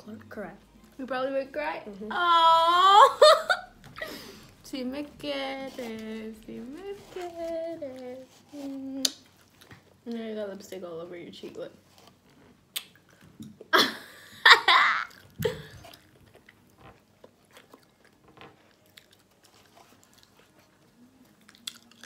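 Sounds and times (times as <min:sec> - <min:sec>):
close-up chewing: 0:05.6 - 0:10.2, 0:15.1 - 0:22.0.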